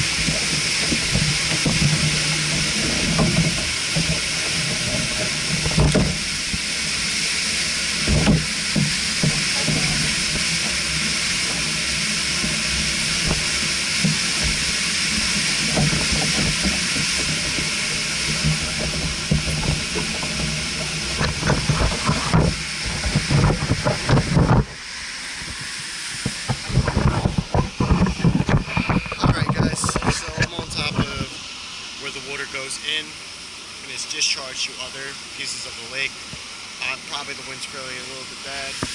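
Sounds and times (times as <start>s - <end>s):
low knocks and bumps: 0.0s - 6.7s, 12.4s - 24.8s
water rushing hiss: 0.0s - 38.9s.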